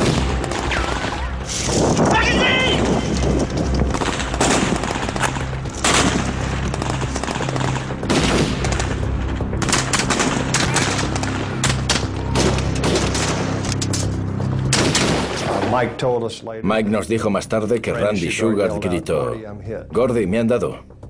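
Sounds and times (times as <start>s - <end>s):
low droning music: 0.0s - 21.0s
rifle shots and bursts: 2.8s - 9.0s.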